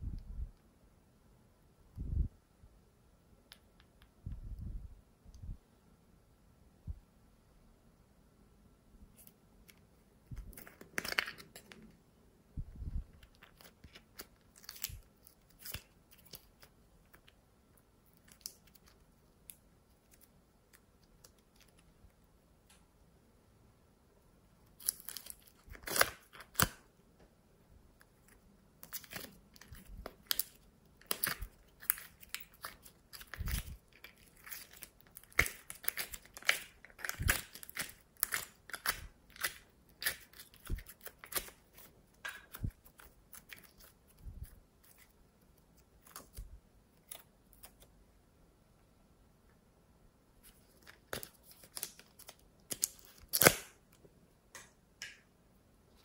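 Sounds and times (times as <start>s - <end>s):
plastic container crinkle: 28.2s - 45.2s.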